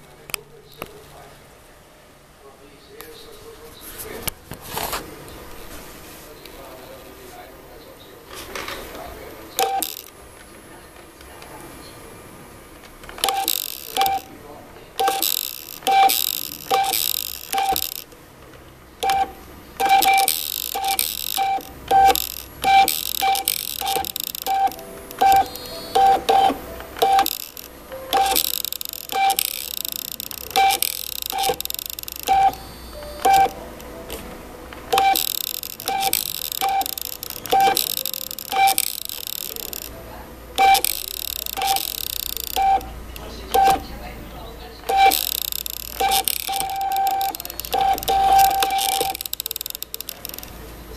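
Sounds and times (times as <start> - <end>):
stepper motor beeping tones: 9.6 - 10.1, 13.2 - 14.4, 15.0 - 18.1, 19.0 - 34.1, 34.9 - 50.9.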